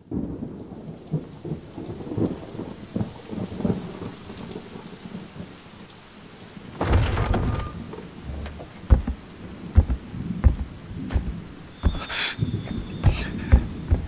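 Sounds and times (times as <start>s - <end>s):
rumbles of thunder: 0.0s - 5.5s
rain falling: 0.0s - 14.0s.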